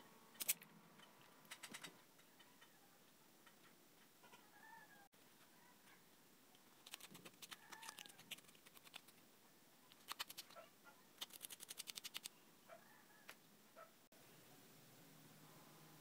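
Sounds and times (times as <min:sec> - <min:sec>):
light sharp clicks and scratches: 0:05.8 - 0:09.2, 0:09.8 - 0:12.4.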